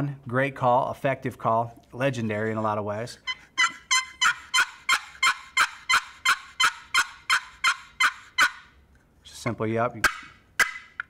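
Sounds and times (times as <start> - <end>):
box turkey call yelps: 3.2 - 8.8, 10.0 - 11.0.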